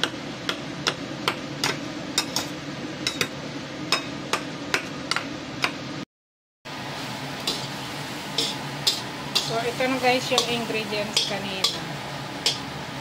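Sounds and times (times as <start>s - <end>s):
spatula clicking on plate: 12.4s - 12.7s.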